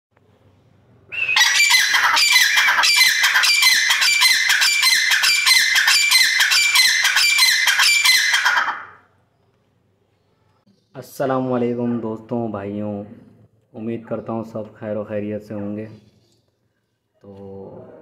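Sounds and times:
birds squawking: 1.1 - 9.0.

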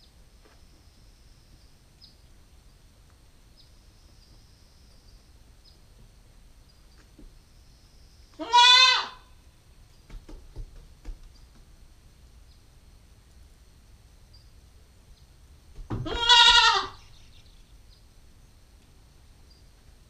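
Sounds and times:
goat kid bleating: 8.4 - 9.3, 16.0 - 17.0.

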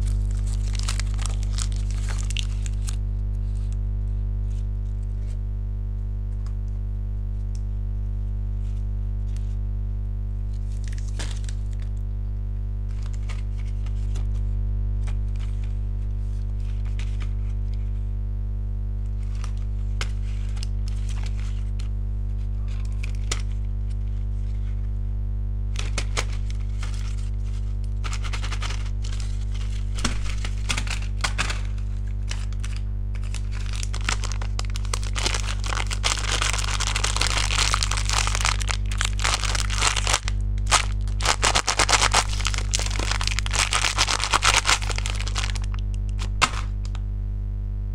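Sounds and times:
candy wrappers clicking and rustling: 0.0 - 3.0, 10.7 - 11.9, 19.3 - 21.8, 22.7 - 23.6, 25.8 - 46.7
low electrical hum: 0.0 - 47.9.

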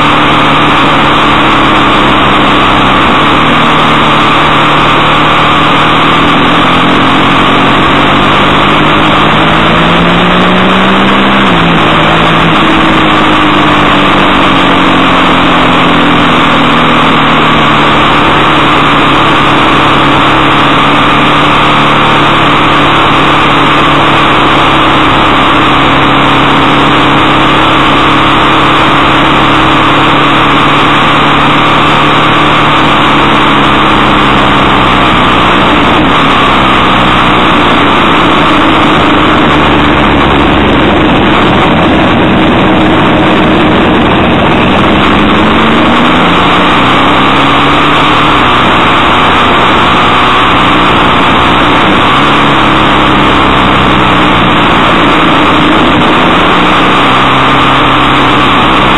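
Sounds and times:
motorcycle engine: 0.0 - 58.9
wind rush: 32.6 - 58.9.

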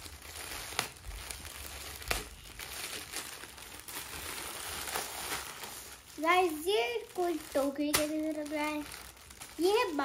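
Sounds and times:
plastic bag crinkling: 0.0 - 10.0
sharp plastic crackles: 0.0 - 10.0.

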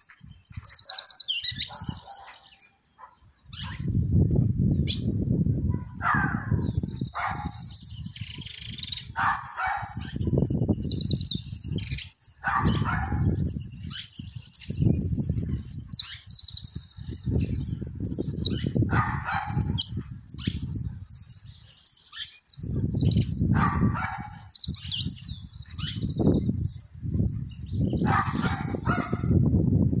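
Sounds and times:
wind rumble on microphone: 0.0 - 2.4, 3.2 - 21.8, 22.5 - 30.0
finch singing trilled phrases: 0.0 - 30.0.

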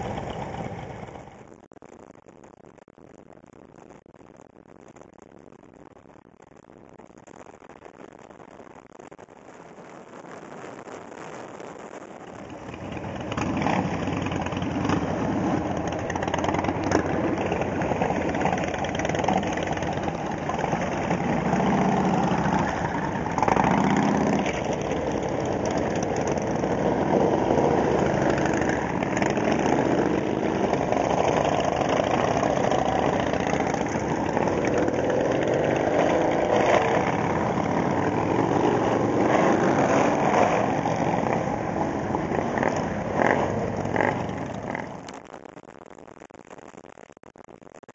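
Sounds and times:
motorcycles idling and passing: 0.0 - 1.5, 12.4 - 45.1.

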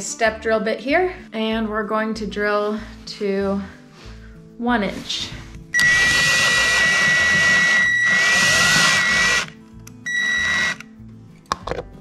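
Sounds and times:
cordless drill whining: 5.8 - 10.8.

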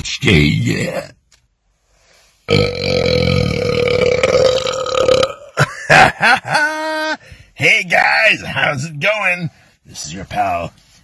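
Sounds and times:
man belching: 2.5 - 6.0.

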